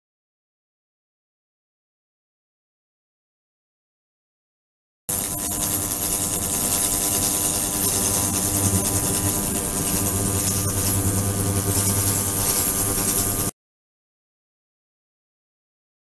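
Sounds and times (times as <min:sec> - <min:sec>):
ultrasonic cleaner buzzing hum: 0:05.1 - 0:13.5.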